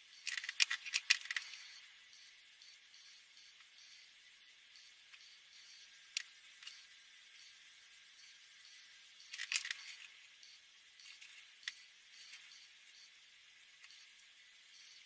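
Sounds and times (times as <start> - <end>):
markers clattering: 0.3 - 1.6, 9.3 - 10.1.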